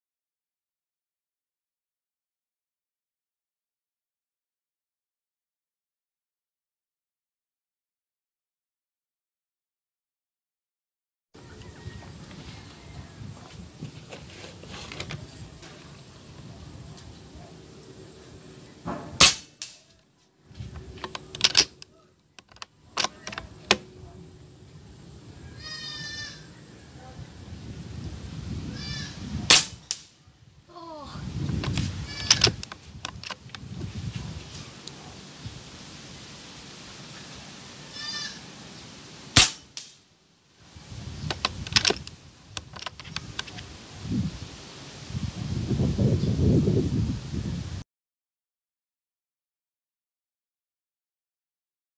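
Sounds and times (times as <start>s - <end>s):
air rifle firing: 18.9s - 19.8s, 29.5s - 30.1s, 39.4s - 40.0s
rifle bolt clicking and rattling: 21.0s - 23.8s, 32.3s - 33.5s, 41.3s - 43.6s
rifle bolt clicks: 21.0s - 23.8s.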